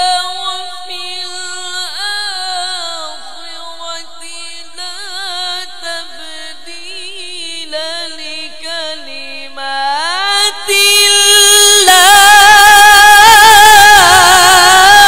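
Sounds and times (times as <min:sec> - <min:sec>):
man reciting melodically: 0:00.0 - 0:15.0.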